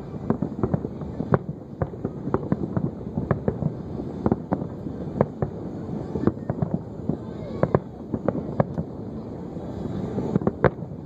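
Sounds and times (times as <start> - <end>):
fireworks bangs and pops: 0.0 - 11.0.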